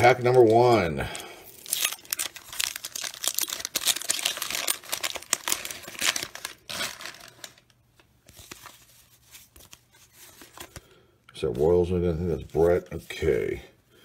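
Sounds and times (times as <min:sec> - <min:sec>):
waxed paper wrapper tearing: 0:01.5 - 0:07.8
cards rustling and clicking: 0:01.6 - 0:10.9.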